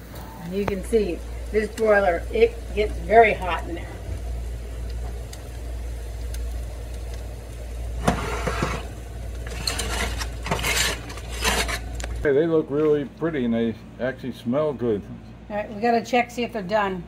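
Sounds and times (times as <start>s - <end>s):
steady low hum: 0.0s - 17.0s
baking pan scraping on oven rack: 8.0s - 12.2s.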